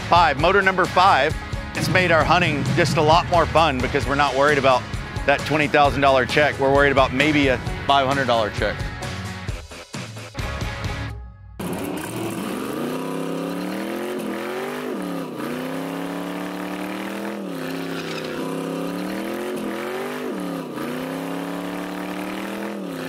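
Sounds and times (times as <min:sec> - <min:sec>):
car engine revving: 0:00.0 - 0:08.3, 0:11.6 - 0:23.0.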